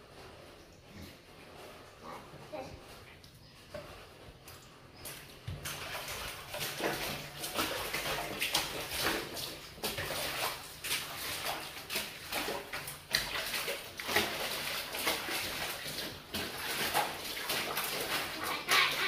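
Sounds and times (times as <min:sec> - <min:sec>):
laundry sloshing underfoot in water: 0:03.8 - 0:19.0.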